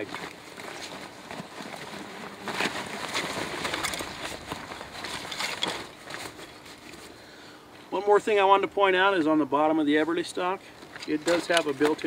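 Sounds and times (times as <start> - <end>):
nylon backpack rustling and scraping: 0.0 - 7.3.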